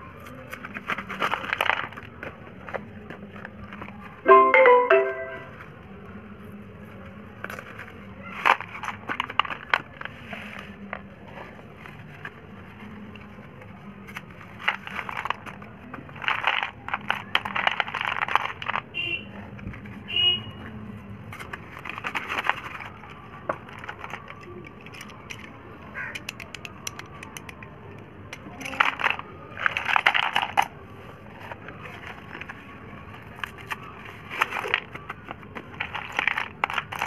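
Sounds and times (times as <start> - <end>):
slate pencils clattering onto plate: 34.3 - 37.0.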